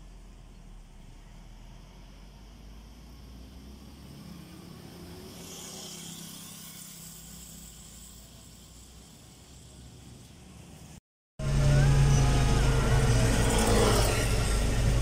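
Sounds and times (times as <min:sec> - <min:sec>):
motorcycle passing: 0:03.3 - 0:15.0.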